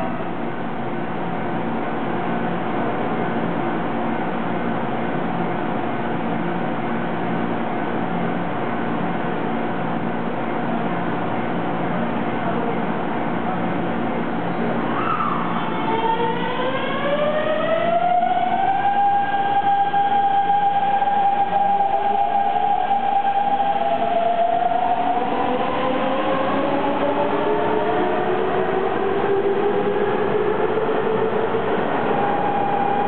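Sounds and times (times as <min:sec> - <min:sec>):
wheels rumbling on rail: 0:00.0 - 0:33.0
electric train motor whine: 0:15.6 - 0:33.0.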